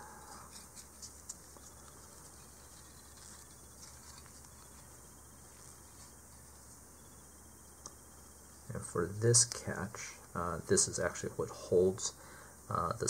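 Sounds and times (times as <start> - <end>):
soft ticks of handling: 0.0 - 7.2.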